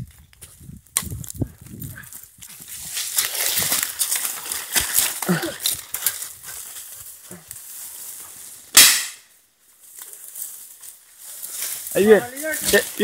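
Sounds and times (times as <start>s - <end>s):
leaves and twigs rustling: 0.0s - 13.0s.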